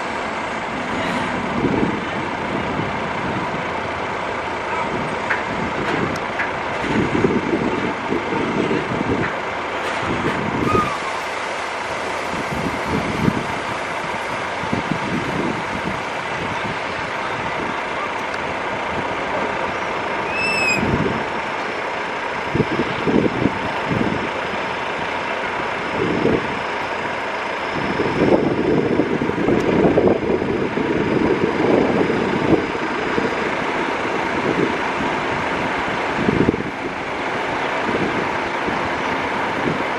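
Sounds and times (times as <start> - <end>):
wind buffeting microphone: 0.0 - 21.5, 22.3 - 27.1, 27.8 - 39.9
jet engines roaring: 9.8 - 39.9
short high chirp: 20.3 - 20.8.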